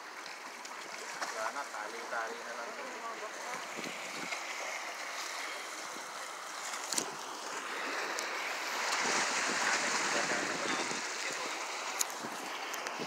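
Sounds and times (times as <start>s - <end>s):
wind: 0.0s - 13.0s
sea waves washing against rocks: 0.7s - 13.0s.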